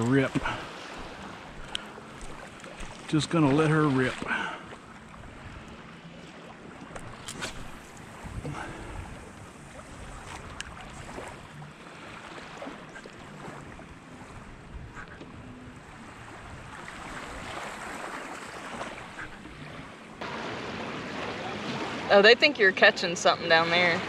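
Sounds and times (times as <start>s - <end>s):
wind buffeting microphone: 7.0s - 11.6s, 13.3s - 22.6s
surf breaking: 16.0s - 24.0s.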